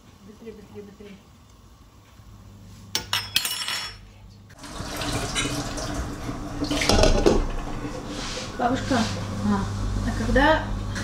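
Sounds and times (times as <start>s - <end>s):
dishes clinking: 3.0s - 4.0s.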